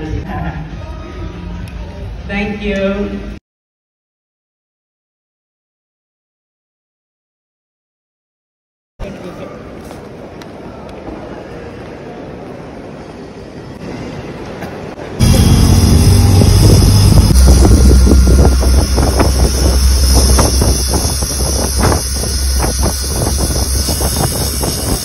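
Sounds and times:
terminal ambience: 13.8 - 25.0
small engine droning: 15.2 - 25.0
wind buffeting microphone: 15.2 - 25.0.

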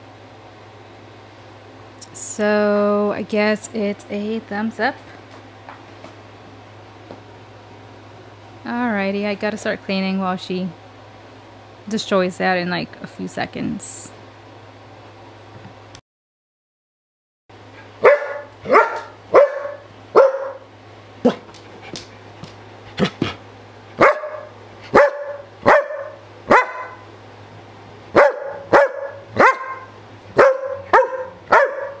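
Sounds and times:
steady low hum: 0.0 - 16.0, 17.5 - 32.0
dog barking: 18.0 - 20.6, 24.0 - 27.1, 28.1 - 32.0.

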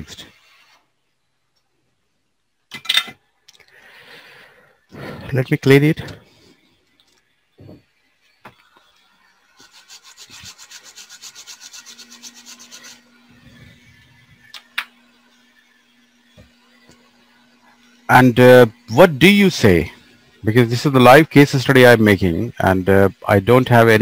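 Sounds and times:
rapid scrubbing on circuit board: 0.0 - 0.9, 7.9 - 24.0.

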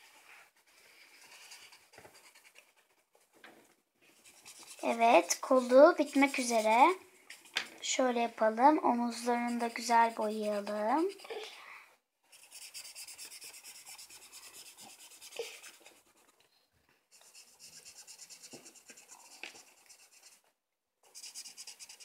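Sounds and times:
marker scribbling on paper: 1.2 - 2.8, 4.2 - 7.6, 9.1 - 11.4, 12.3 - 16.4, 17.1 - 20.4, 21.0 - 22.0.

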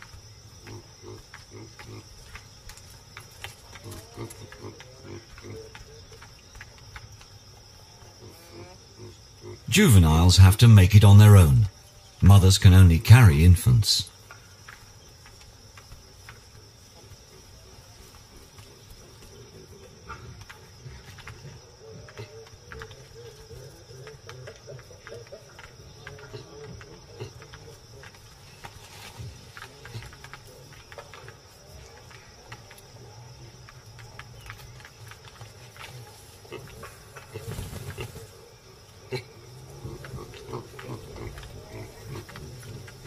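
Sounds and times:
insect chorus trilling: 0.0 - 43.0.

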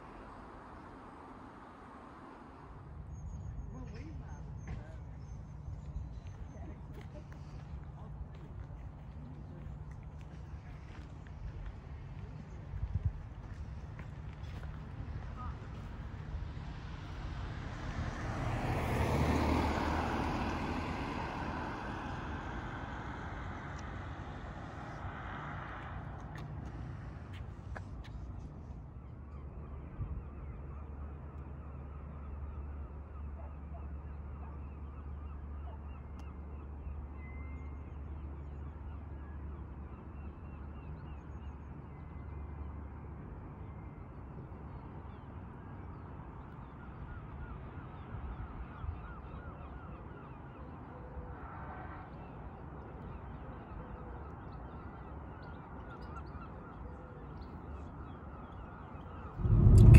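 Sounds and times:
low hum: 59.2 - 59.9.

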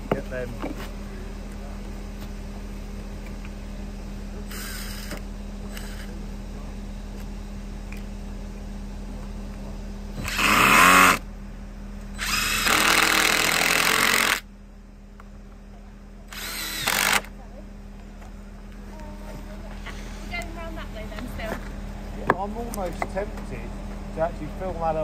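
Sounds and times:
cordless drill running: 4.5 - 6.1, 10.2 - 11.2, 12.2 - 14.5, 16.3 - 17.3.

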